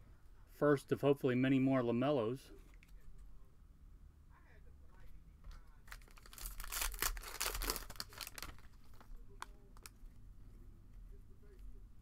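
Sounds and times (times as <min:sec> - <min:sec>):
foil wrapper tearing and crinkling: 0:05.9 - 0:09.9.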